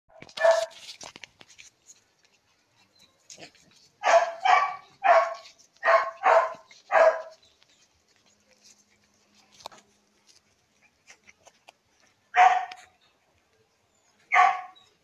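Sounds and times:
puppy barking: 0:00.1 - 0:00.8, 0:03.4 - 0:07.4, 0:12.3 - 0:12.9, 0:14.3 - 0:14.9.

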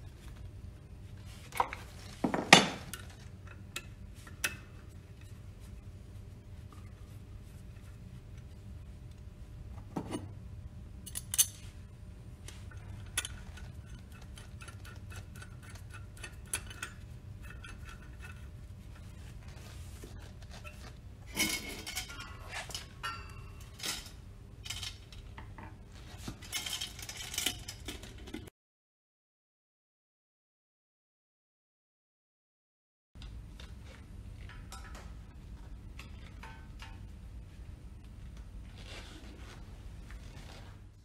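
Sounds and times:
steady low hum: 0:00.0 - 0:28.5, 0:33.2 - 0:41.0
metal parts clinking: 0:26.4 - 0:28.4.

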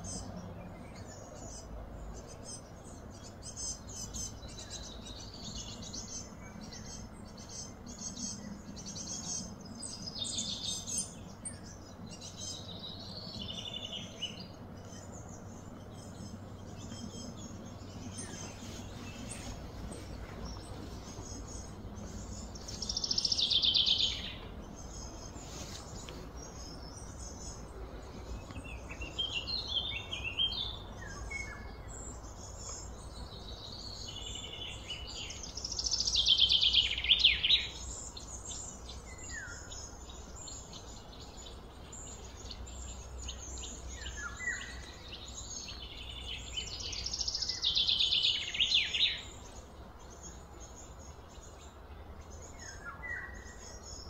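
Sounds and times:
low hum: 0:00.0 - 0:35.6
bird chirps: 0:00.0 - 0:54.0.

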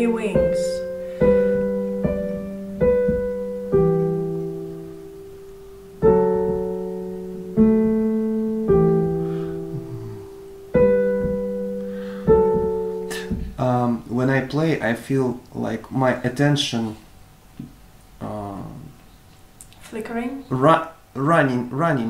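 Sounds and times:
digital piano chords: 0:00.0 - 0:14.7.

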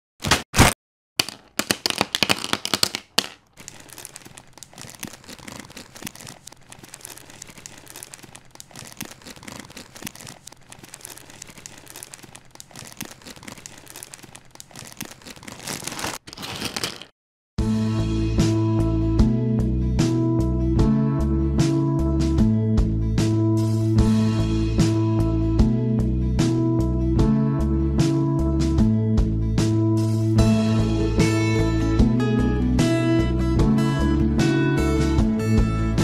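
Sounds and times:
dry pasta rattling on tabletop: 0:01.2 - 0:17.1.

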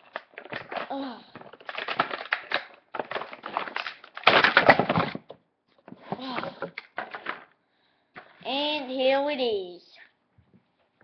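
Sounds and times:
plastic packaging crinkling: 0:00.0 - 0:05.3.

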